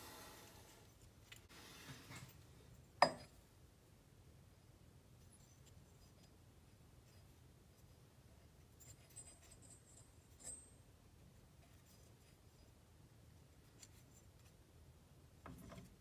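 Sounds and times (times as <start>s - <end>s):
soft clicks and rustles of handling: 0.8s - 3.0s, 5.2s - 14.7s.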